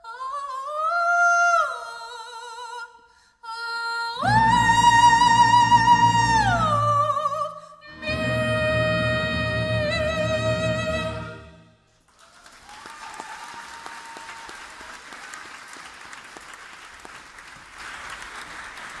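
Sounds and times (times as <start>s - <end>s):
woman singing high note: 4.2s - 11.7s
audience applauding: 12.0s - 19.0s.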